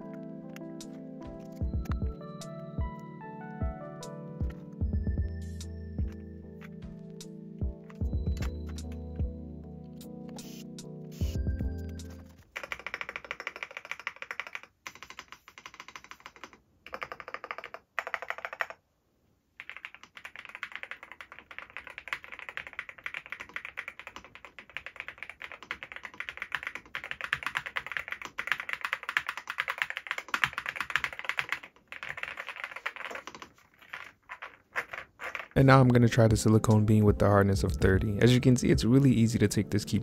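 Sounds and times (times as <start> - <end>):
mechanical keyboard typing: 0.8 - 2.2, 6.0 - 9.3, 10.3 - 18.8, 19.6 - 35.7.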